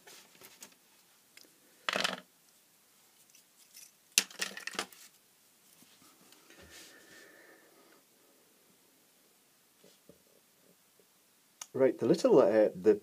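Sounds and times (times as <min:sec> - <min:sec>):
marker pen clattering on tabletop: 0:01.9 - 0:02.3, 0:04.2 - 0:05.0.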